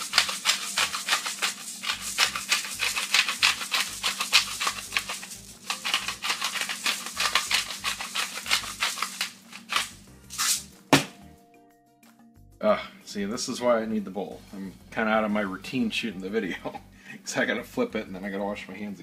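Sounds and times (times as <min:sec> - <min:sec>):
pepper shaker rattling: 0:00.0 - 0:10.7.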